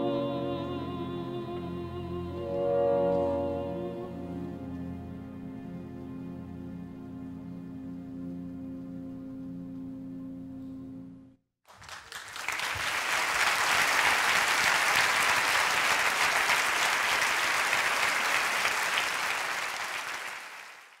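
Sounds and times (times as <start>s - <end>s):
held orchestral note: 2.2s - 5.5s
audience applauding: 11.7s - 21.0s.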